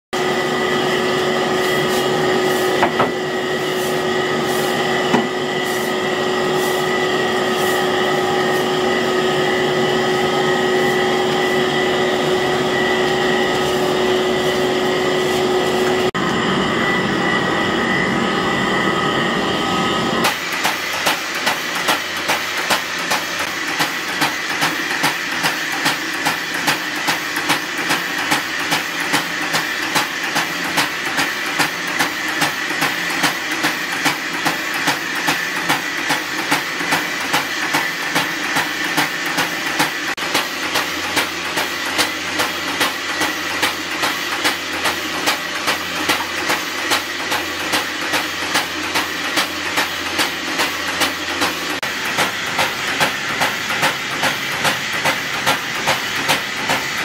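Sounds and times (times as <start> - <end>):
machinery whining: 0.2 - 57.0
regular mechanical knocking: 20.2 - 57.0.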